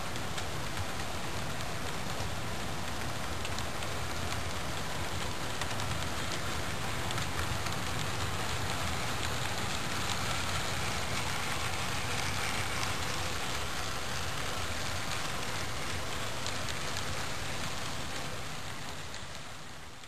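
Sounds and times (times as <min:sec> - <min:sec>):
model train rattling on track: 0:00.0 - 0:20.0.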